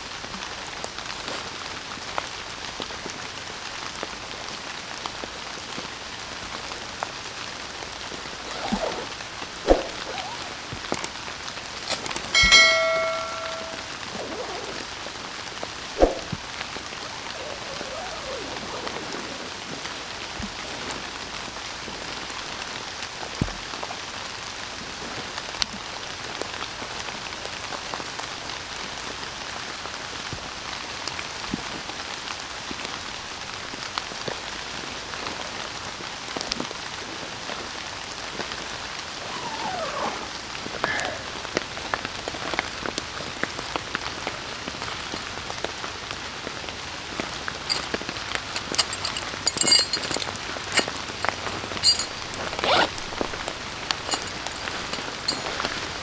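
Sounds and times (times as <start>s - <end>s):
steady rain falling: 0.0s - 56.0s
clicks and rustles: 11.8s - 14.0s, 41.9s - 45.9s, 47.0s - 56.0s.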